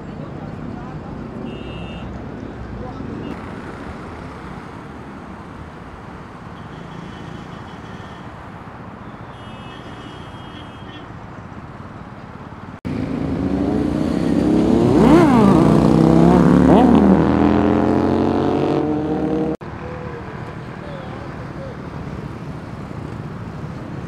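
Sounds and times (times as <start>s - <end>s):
cars passing: 0.0s - 24.0s
motorcycle engine revving: 12.9s - 19.6s.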